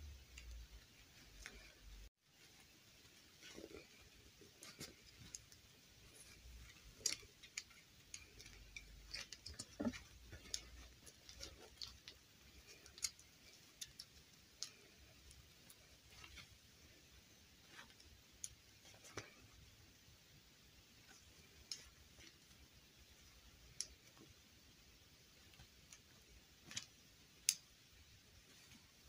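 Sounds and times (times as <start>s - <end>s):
fabric rustling: 0.6s - 19.8s.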